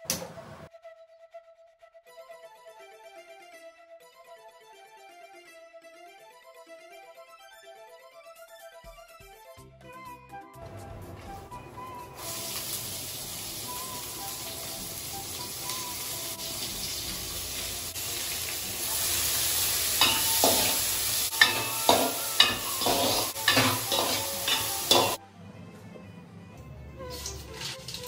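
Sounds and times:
vegetables sizzling in a pan: 12.2s - 25.2s
metal spoon clinking on pan: 20.0s - 25.2s.

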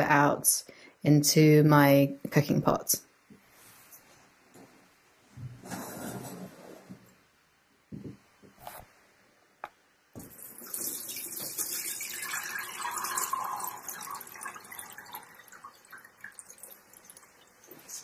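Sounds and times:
water splashing into a pot: 10.2s - 18.0s
water pouring through a sieve: 10.3s - 18.0s.

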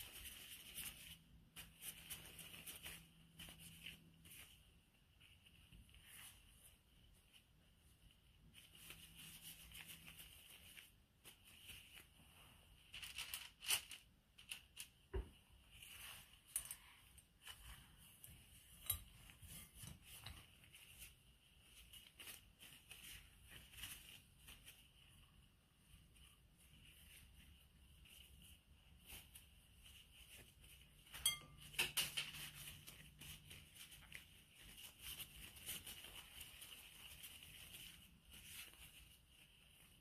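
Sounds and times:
plastic gloves crinkling: 0.0s - 40.0s
soft clinks against glass bowl: 31.1s - 32.0s.

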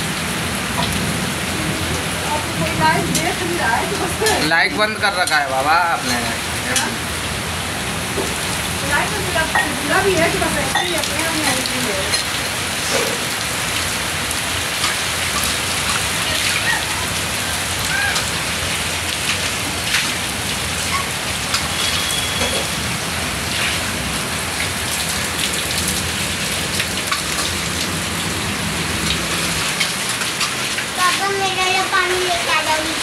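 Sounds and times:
heavy rain pouring: 0.0s - 33.0s
water streaming off roof: 0.0s - 33.0s
water drips and splashes: 8.0s - 33.0s.

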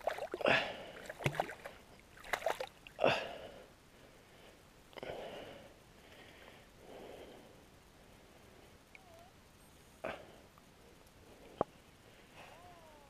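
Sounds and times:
hand splashing in water: 0.0s - 2.7s.

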